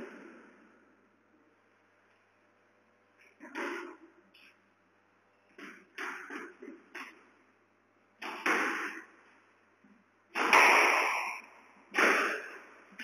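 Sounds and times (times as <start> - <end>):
squash ball hits echoing: 5.6 - 7.2, 8.2 - 9.2, 10.3 - 13.0.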